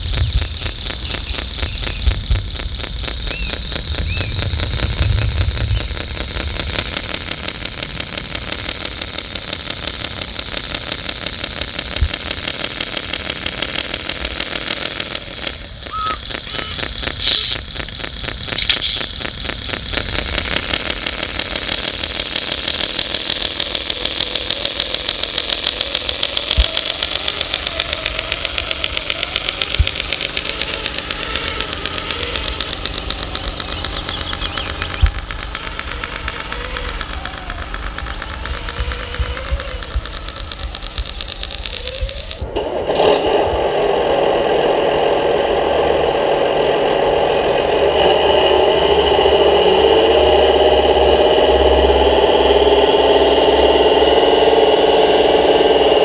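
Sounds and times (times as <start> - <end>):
model truck driving over gravel: 0.0 - 56.0
simulated diesel engine knocking: 0.0 - 56.0.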